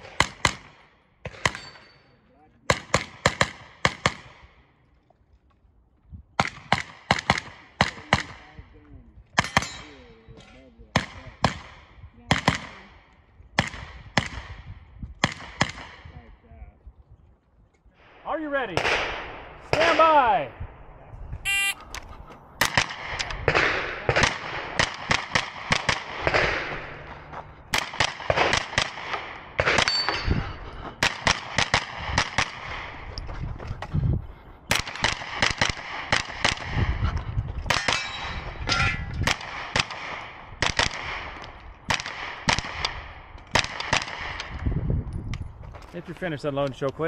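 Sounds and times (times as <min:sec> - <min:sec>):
shot timer beep: 0:21.5 - 0:21.8
carbine firing fast shots: 0:22.6 - 0:27.0, 0:27.7 - 0:30.1, 0:31.0 - 0:33.0, 0:34.7 - 0:36.8, 0:39.2 - 0:44.6.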